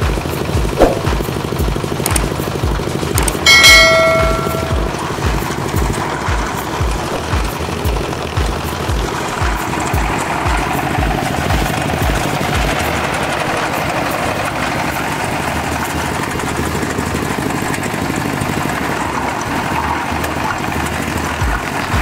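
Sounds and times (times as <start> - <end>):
silage machine engine running: 0.0 - 22.0
low thumps: 0.6 - 1.3.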